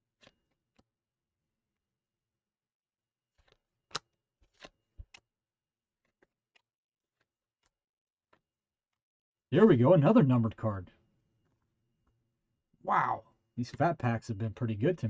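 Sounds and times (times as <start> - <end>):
trading cards shuffled by hand: 3.3 - 5.2.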